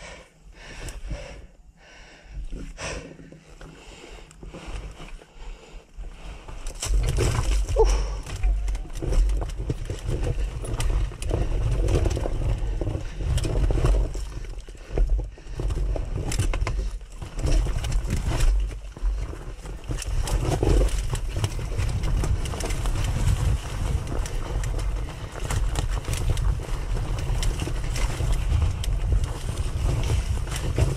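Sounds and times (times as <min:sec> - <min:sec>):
stones knocking and clattering: 0:06.7 - 0:14.4.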